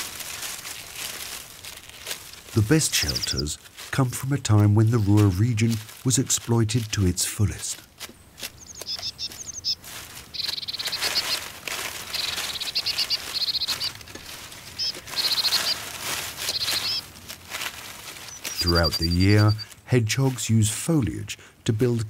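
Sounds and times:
dry leaves rustling: 0.0s - 21.2s
high-pitched chirping trills: 3.0s - 3.4s, 8.5s - 17.1s, 18.2s - 19.7s.

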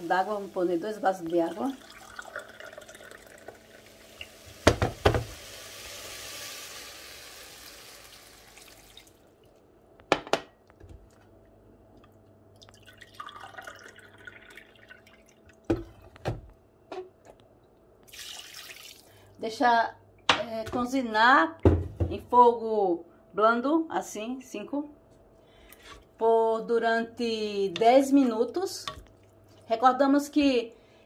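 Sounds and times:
water pouring: 0.0s - 9.6s, 12.6s - 16.0s, 18.0s - 19.2s.

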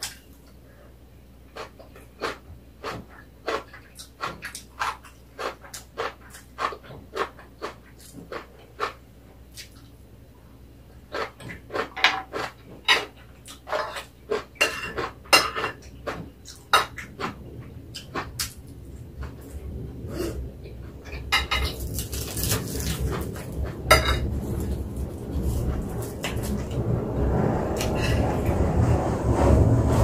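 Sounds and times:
seaweed sheet crackling: 21.7s - 27.1s
cutlery clinking on ceramic plates: 23.9s - 24.3s.

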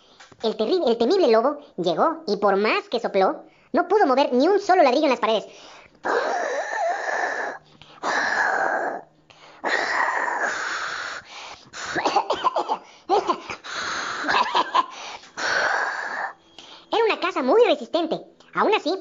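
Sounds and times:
person blowing hard: 9.6s - 12.2s.

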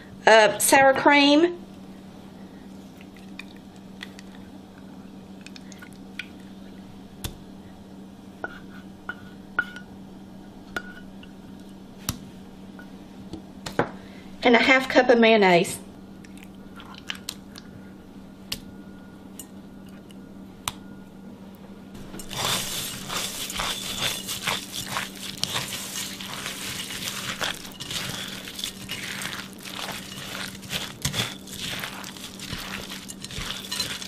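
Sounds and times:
spatula stirring wet mixture: 22.2s - 34.0s.

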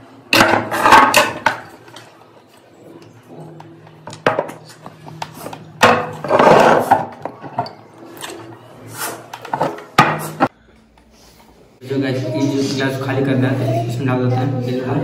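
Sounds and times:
glass scraping on table: 6.2s - 7.7s.

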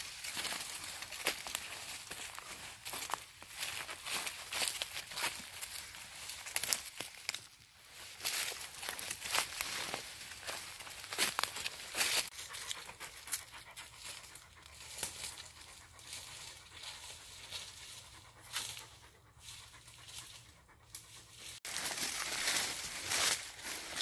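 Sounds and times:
footsteps through leaf litter: 0.0s - 12.5s, 21.6s - 24.0s
dog panting: 8.4s - 21.6s.

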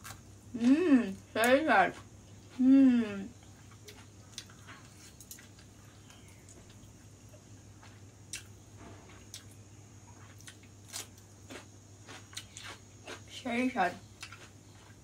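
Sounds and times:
cucumber crunch: 0.0s - 2.7s, 7.8s - 15.0s
person chewing noodles: 3.4s - 7.0s, 9.1s - 13.3s, 14.2s - 15.0s.

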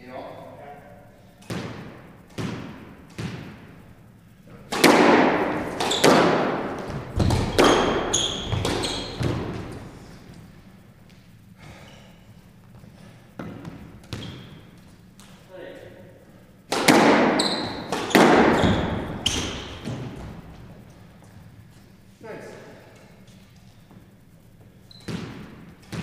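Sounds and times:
squash ball hits: 1.4s - 3.8s, 4.5s - 10.5s, 13.4s - 15.4s, 16.6s - 21.0s, 25.0s - 26.0s
shoe squeaks on wooden floor: 5.7s - 10.1s, 14.1s - 14.7s, 17.3s - 20.3s, 24.7s - 25.4s.

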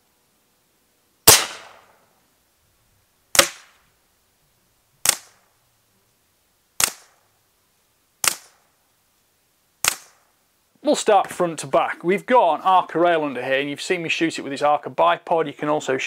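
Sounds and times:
air rifle shots: 1.3s - 2.0s, 3.3s - 3.8s, 5.0s - 5.4s, 6.8s - 7.2s, 8.2s - 8.6s, 9.8s - 10.2s.

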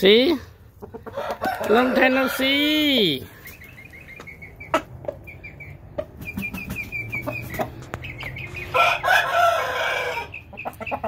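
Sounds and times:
rooster crowing: 1.1s - 2.8s, 8.6s - 10.4s
high chirping notes: 3.2s - 9.1s.

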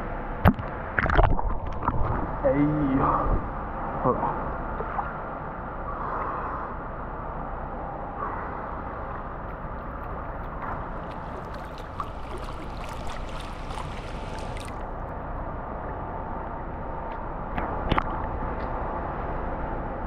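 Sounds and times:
churning water wash: 8.8s - 15.1s
pool water splashing: 8.8s - 15.1s.

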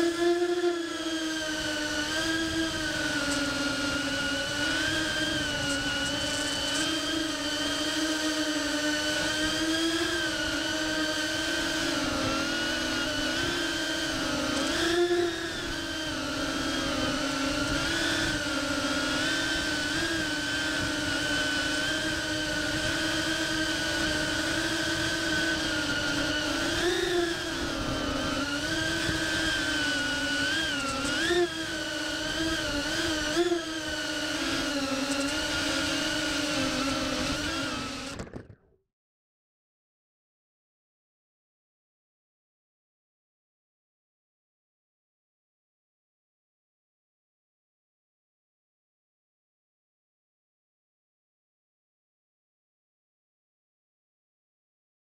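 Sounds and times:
drone motors whining: 0.0s - 38.7s.

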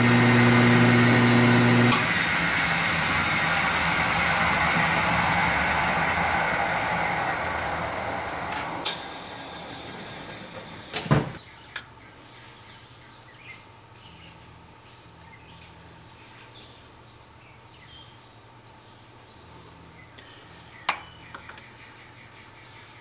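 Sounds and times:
milling spindle whir: 0.0s - 11.4s.

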